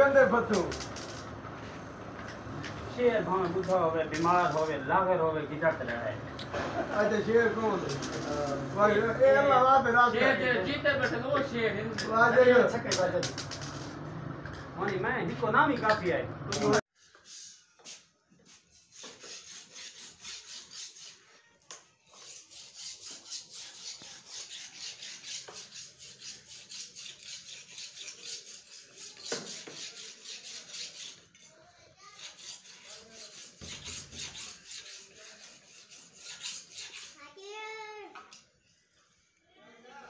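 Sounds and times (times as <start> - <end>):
blade scraping on sharpening stone: 22.1 - 31.5, 32.1 - 37.2.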